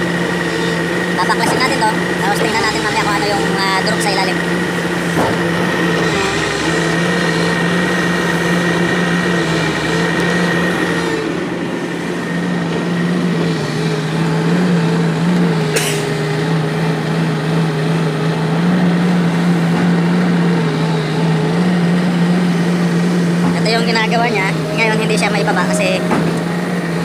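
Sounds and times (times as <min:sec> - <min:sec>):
excavator diesel engine running: 0:00.0 - 0:27.0.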